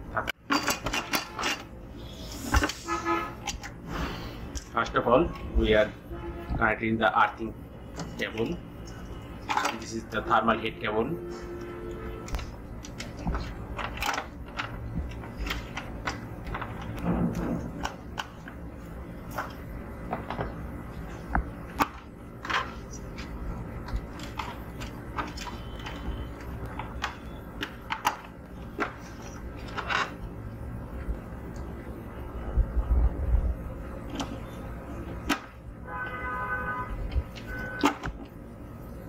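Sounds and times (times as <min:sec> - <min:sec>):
low steady hum: 0:00.0 - 0:39.0.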